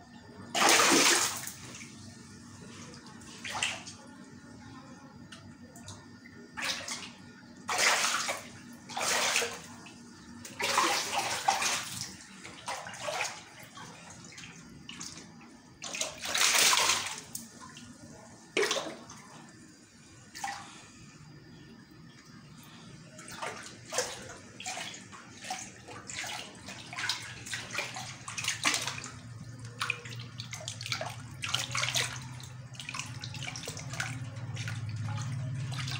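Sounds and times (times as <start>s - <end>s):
water splashing in pond: 0.5s - 1.6s, 15.8s - 17.4s, 23.2s - 35.9s.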